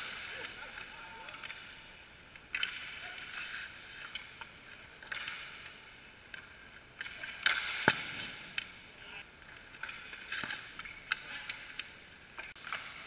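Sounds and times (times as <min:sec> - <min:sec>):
hockey sticks clicking: 0:00.0 - 0:13.0
skate blades scraping ice: 0:02.5 - 0:05.9.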